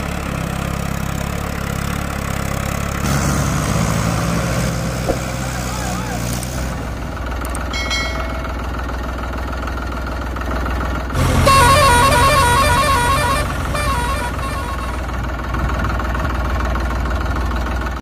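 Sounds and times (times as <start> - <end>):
low engine drone: 2.3 - 17.9
musical vehicle horn: 11.2 - 15.4.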